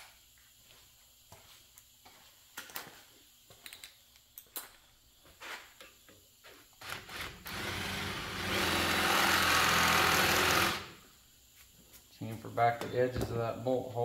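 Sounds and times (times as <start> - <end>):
electric drill drilling metal: 6.8 - 11.0.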